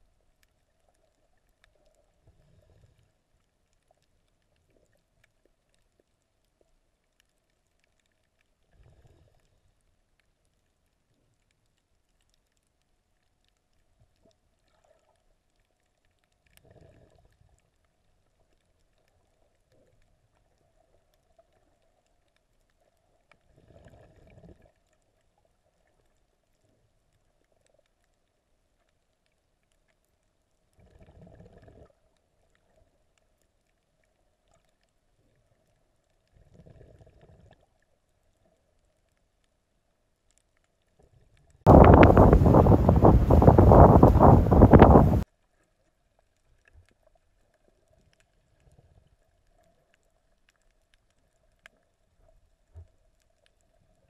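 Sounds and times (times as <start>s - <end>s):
faint underwater hum: 0.0s - 45.2s
low underwater gushes: 41.1s - 45.2s
wind buffeting microphone: 41.7s - 45.2s.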